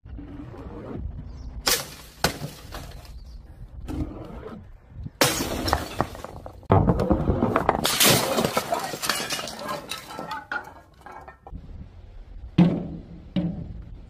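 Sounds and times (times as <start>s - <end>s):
glass smashing: 1.7s - 3.1s, 5.2s - 6.6s, 7.8s - 11.5s
glass shards clinking: 7.9s - 11.5s.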